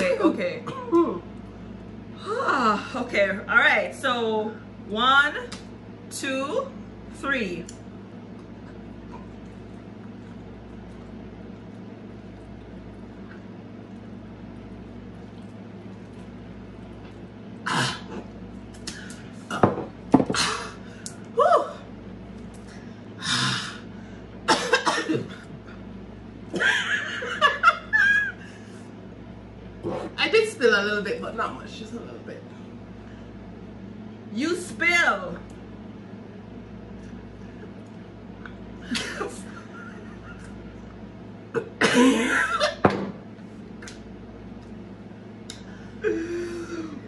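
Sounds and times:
women laughing: 26.6 - 28.5, 38.8 - 40.5.

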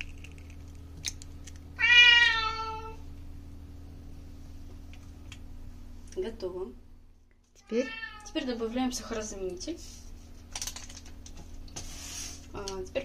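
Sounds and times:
steady low hum: 0.0 - 13.0
cat meowing: 1.8 - 3.0, 7.6 - 8.4.

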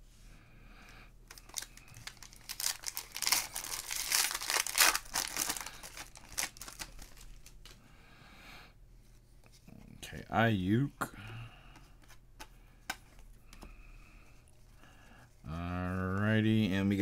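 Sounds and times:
foil wrapper crinkling: 1.3 - 7.8.

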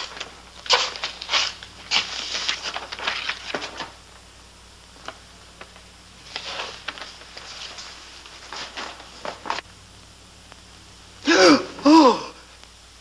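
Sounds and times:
paper rustling and crackling: 0.0 - 4.0, 5.0 - 9.6.

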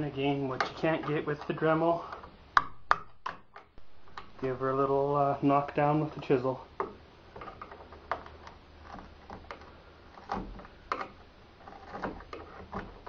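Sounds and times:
sharp knocks: 2.6 - 4.4.

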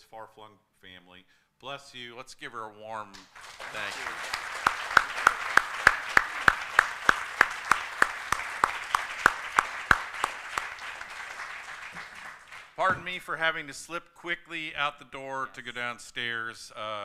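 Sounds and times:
close hands clapping: 3.1 - 13.0
audience applauding: 3.2 - 12.9.

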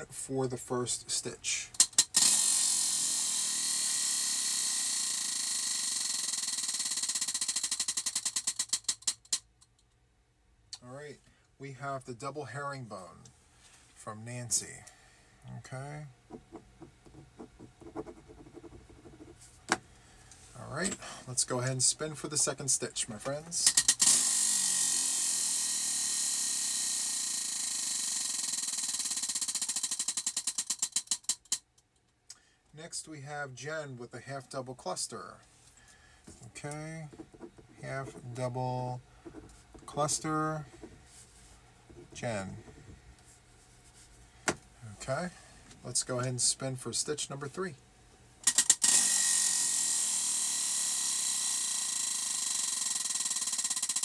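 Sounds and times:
prize wheel clicking: 1.8 - 9.4, 23.7 - 31.6, 48.5 - 54.0.

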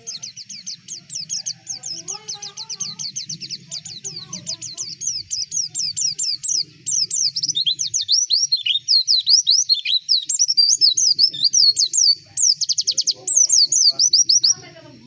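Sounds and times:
bird warbling: 0.0 - 15.0.

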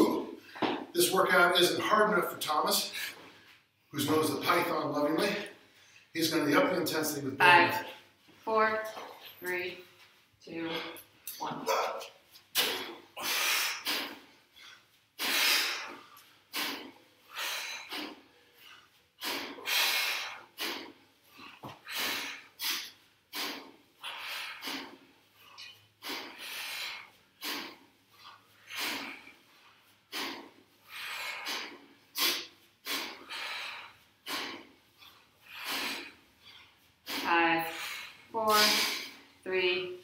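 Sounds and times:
person sniffing: 12.6 - 39.3
forceful exhales: 15.2 - 25.0, 26.0 - 27.8, 35.5 - 39.2.

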